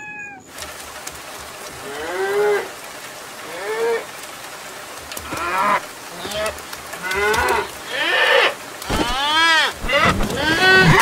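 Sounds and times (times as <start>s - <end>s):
cattle mooing: 5.2s - 11.0s.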